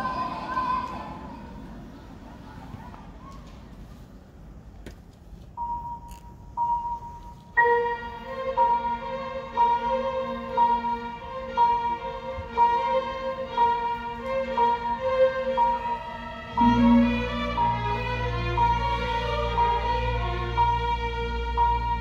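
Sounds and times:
string orchestra playing: 7.6s - 22.0s.

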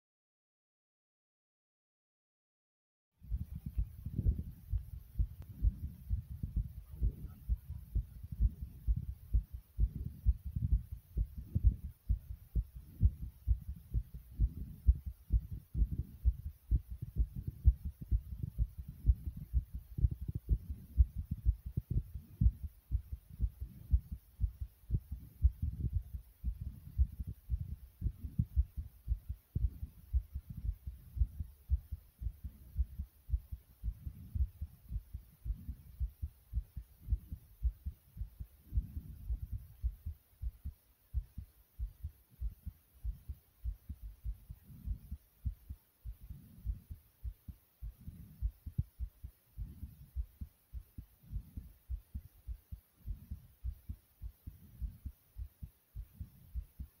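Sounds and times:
heartbeat thumps: 3.2s - 57.0s
soft low rumbles: 3.2s - 57.0s.

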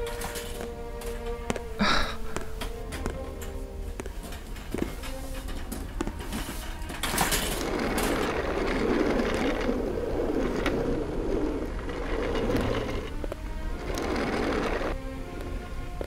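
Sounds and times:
stretcher wheels rattling on pavement: 4.1s - 15.0s.

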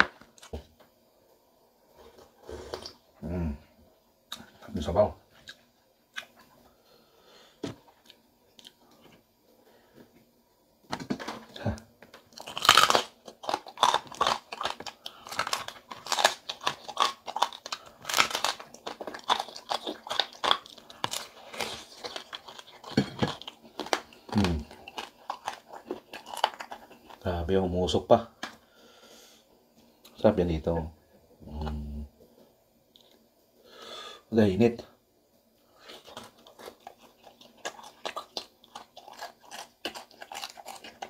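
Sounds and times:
crunching of crispy food being chewed: 11.2s - 27.5s, 35.8s - 41.0s.

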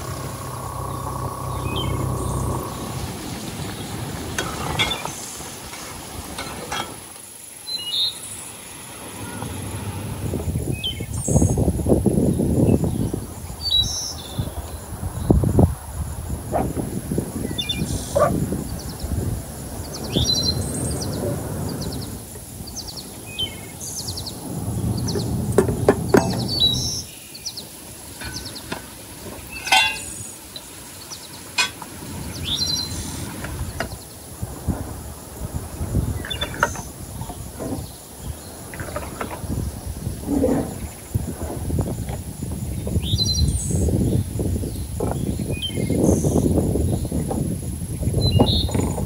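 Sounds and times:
birds chirping: 0.0s - 5.8s, 17.4s - 34.3s
low rumbling background noise: 0.0s - 49.0s
sharp knocks and clicks: 25.5s - 26.6s.

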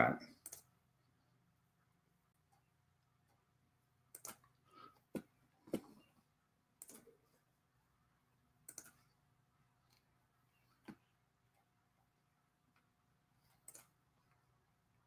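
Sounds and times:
computer mouse clicking: 0.4s - 0.7s, 4.1s - 4.6s, 6.8s - 7.2s, 8.6s - 9.2s, 13.5s - 14.4s.

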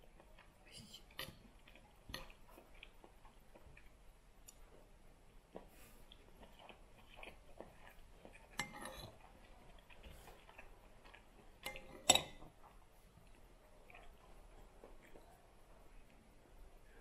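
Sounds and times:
cutlery clinking against dish: 11.6s - 12.6s.

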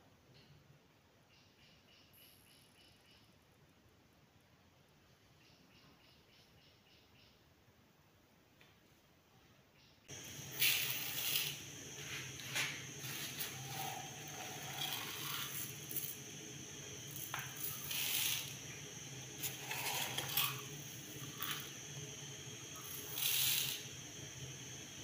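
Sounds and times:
rice grains pouring into bowl: 10.2s - 21.8s, 22.7s - 24.0s.

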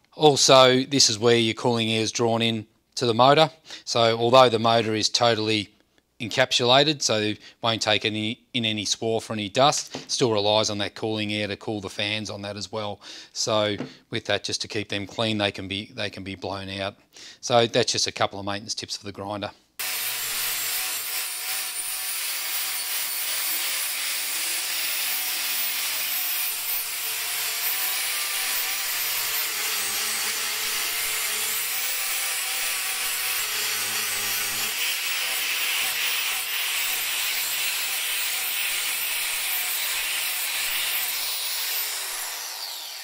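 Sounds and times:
grinder disc grinding metal: 19.8s - 43.0s
grinder motor whine: 19.8s - 43.0s.

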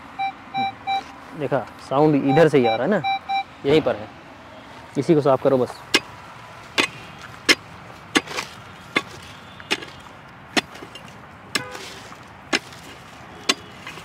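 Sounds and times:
metal tool chopping into dry soil: 6.7s - 14.0s.

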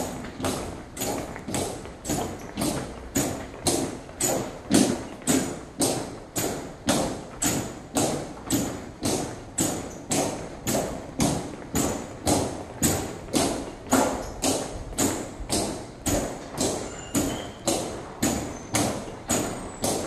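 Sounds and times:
boots marching on hard floor: 0.0s - 20.0s.

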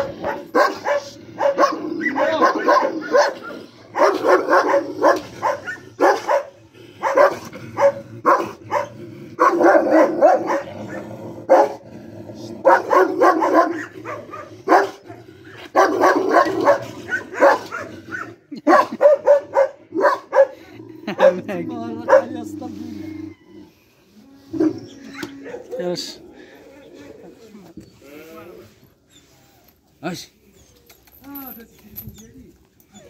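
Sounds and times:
dogs barking: 0.0s - 11.8s, 12.6s - 22.5s, 24.6s - 26.2s.

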